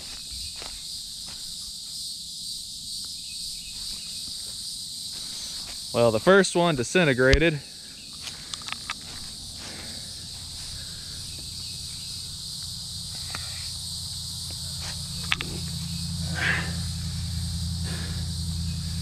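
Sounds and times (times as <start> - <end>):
high insect chorus: 0.0 - 19.0
low steady rumble: 7.8 - 19.0
footsteps on dry leaves: 8.2 - 12.1, 14.4 - 15.9.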